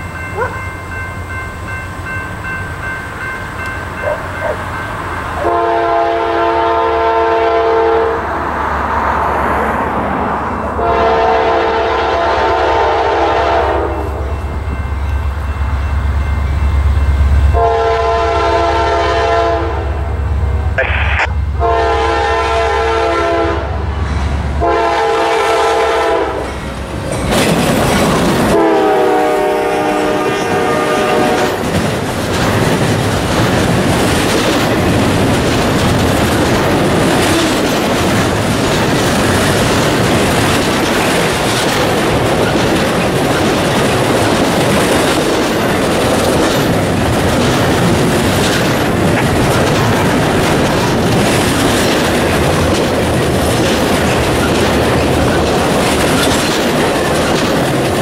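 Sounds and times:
deep rumble of locomotive engine: 0.0 - 58.0
train cars rolling by: 0.0 - 58.0
locomotive air horn blasts: 5.4 - 8.2, 10.8 - 14.3, 17.5 - 23.9, 24.6 - 26.4, 28.5 - 31.6.

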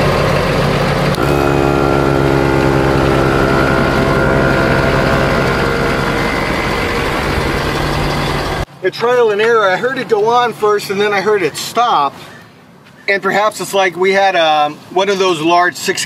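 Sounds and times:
air compressor humming: 0.0 - 8.7
truck engine idling: 0.0 - 8.7.

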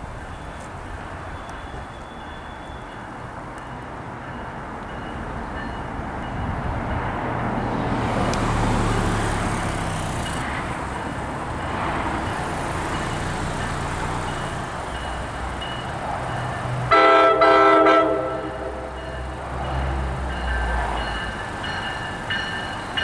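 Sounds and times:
crossing bell ringing: 0.0 - 7.9, 8.7 - 23.0
train rumbling: 0.0 - 23.0
train air horn blasts: 16.9 - 19.0.

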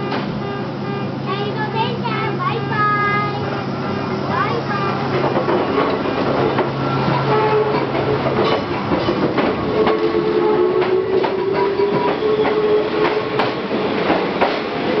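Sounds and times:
train wheels clicking over rail joints: 4.4 - 15.0.

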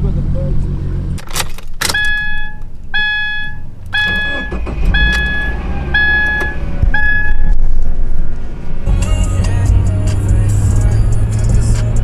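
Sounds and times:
car engine rumbling: 0.0 - 12.0
car warning chime: 1.9 - 7.6.

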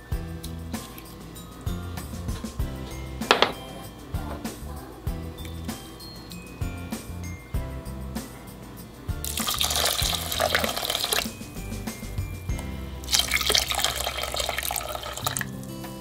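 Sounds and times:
background music: 0.0 - 16.0
liquid poured into pot: 9.2 - 11.3, 13.0 - 15.6.

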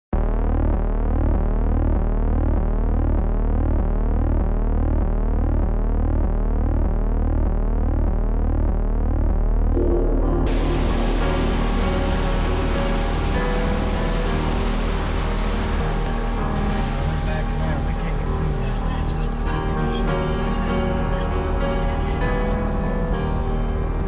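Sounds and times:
pulsing low synth drone: 0.2 - 24.0
rising synth sweeps: 9.8 - 19.4
rush of hissing noise: 10.5 - 19.6.

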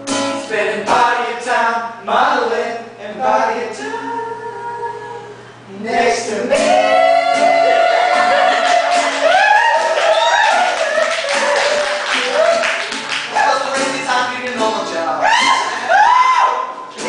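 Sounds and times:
boys singing together: 0.0 - 12.3.

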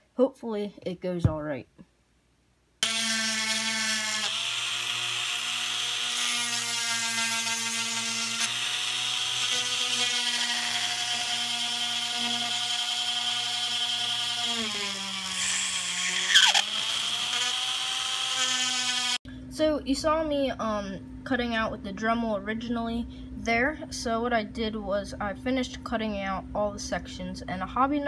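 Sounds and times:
rotary tool whining: 2.8 - 19.2.

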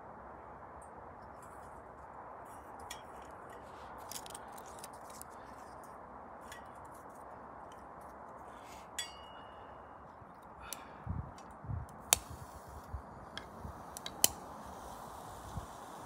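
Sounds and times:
metallic ping: 9.0 - 9.5.

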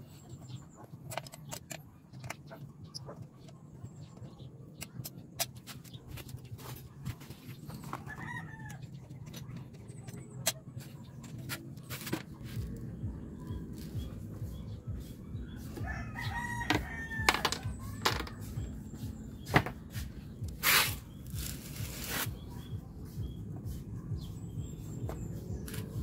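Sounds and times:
rooster crowing: 8.1 - 8.8, 15.8 - 17.6.

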